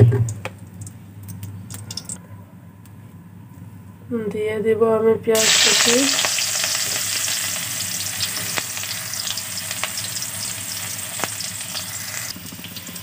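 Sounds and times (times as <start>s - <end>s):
onion sizzling in oil: 5.4s - 13.0s.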